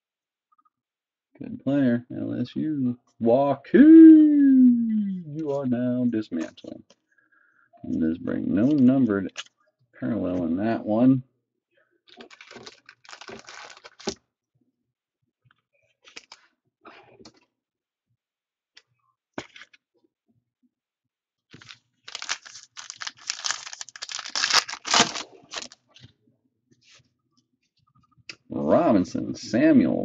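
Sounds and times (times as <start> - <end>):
foil pack crinkling and tearing: 12.1 - 14.2, 21.5 - 25.8.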